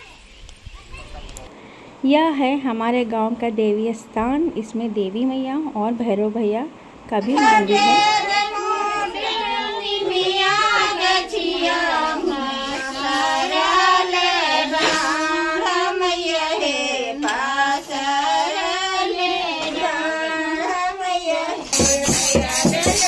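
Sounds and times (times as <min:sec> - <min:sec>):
women singing a devotional folk song: 0:07.1 - 0:23.0.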